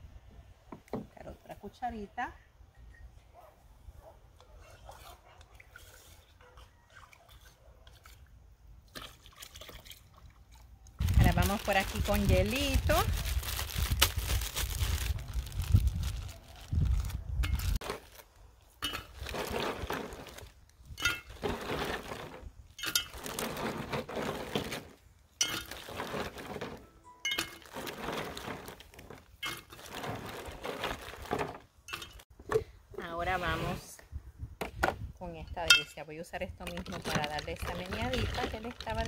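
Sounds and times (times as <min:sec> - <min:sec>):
ice cubes clinking in glass pitcher: 0:18.8 - 0:32.2, 0:36.6 - 0:39.0.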